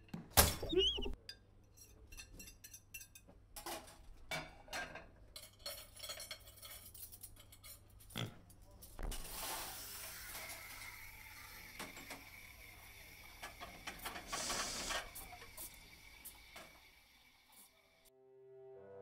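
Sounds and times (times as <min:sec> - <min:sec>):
crockery and cutlery clinking: 0:01.2 - 0:08.1.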